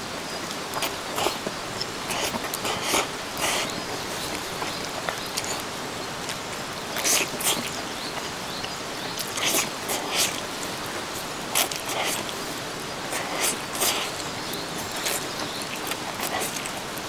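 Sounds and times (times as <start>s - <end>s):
steady hiss: 0.0s - 17.0s
person slurping noodles: 2.0s - 3.8s, 7.0s - 7.8s, 9.2s - 10.4s, 11.5s - 12.4s, 13.1s - 14.2s.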